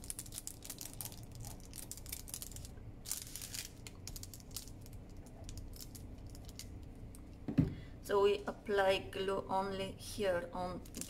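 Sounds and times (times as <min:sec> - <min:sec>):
paper cup crinkling: 0:00.0 - 0:06.9.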